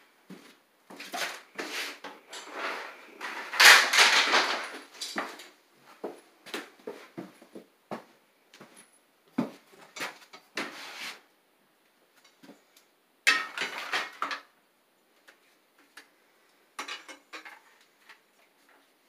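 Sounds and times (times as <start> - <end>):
rattling clatter of tools: 2.3 - 5.5, 16.8 - 18.2.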